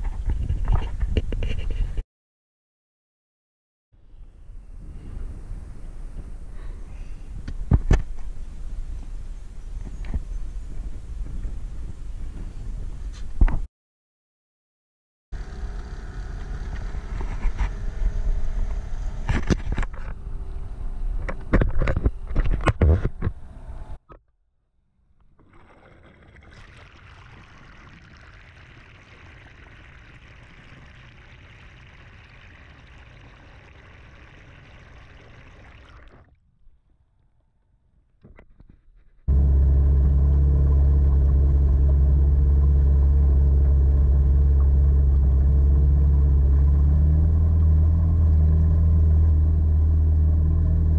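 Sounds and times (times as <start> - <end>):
outboard motor droning: 15.4 - 20.8, 25.3 - 36.3, 39.3 - 50.9
choppy water with knocks: 25.3 - 36.4.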